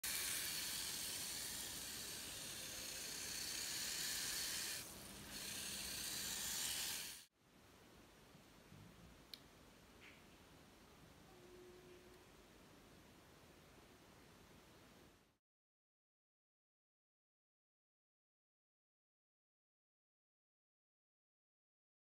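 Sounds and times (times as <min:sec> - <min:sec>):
rc car high hiss: 0:00.0 - 0:07.3
faint click: 0:09.3 - 0:10.2.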